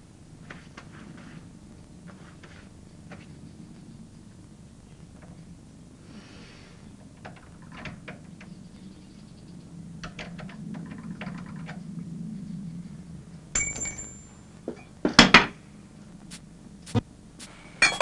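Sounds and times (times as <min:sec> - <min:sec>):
low steady hum: 0:00.0 - 0:18.0
sharp metal clink: 0:13.6 - 0:14.3.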